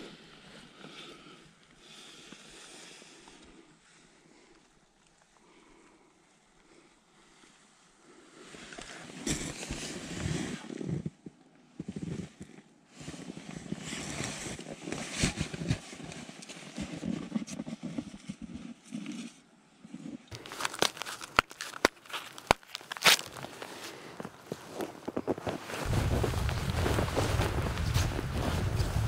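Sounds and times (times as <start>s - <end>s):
sharp crunches and clicks: 20.3s - 28.9s
footsteps crunching in snow: 20.3s - 29.0s
winter coat rustling: 20.3s - 29.0s.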